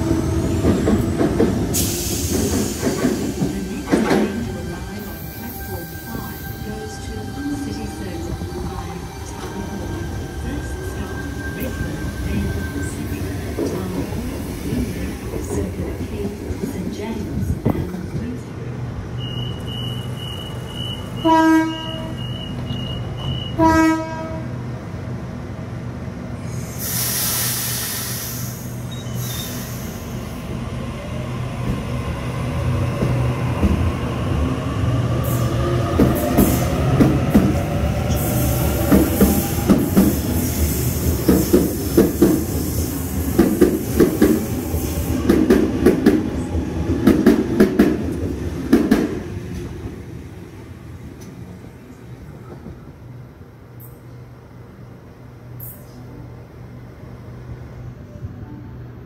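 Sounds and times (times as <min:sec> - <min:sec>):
train wheels clattering over rails: 0:00.4 - 0:04.6, 0:35.9 - 0:49.8
train horn blasts: 0:19.3 - 0:24.5.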